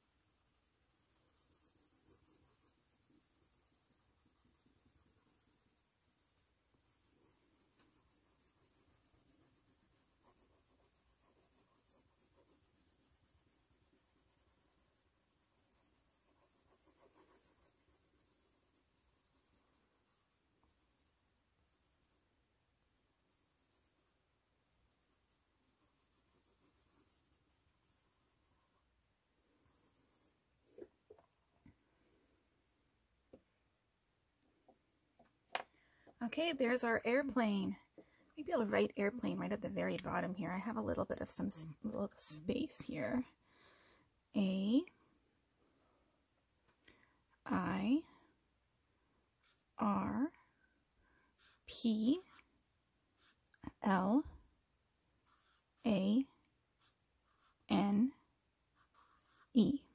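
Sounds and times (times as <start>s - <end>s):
crayon scratching on paper: 0.0s - 22.3s, 22.9s - 28.9s, 29.6s - 30.9s, 36.2s - 37.8s, 38.4s - 43.3s, 49.4s - 50.4s, 51.2s - 54.3s, 55.2s - 59.9s.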